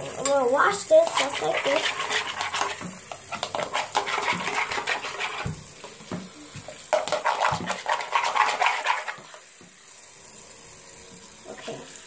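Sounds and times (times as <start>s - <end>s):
tap water running into a bowl: 0.0s - 12.0s
metal spoon scraping a bowl: 1.0s - 5.5s, 7.0s - 9.2s.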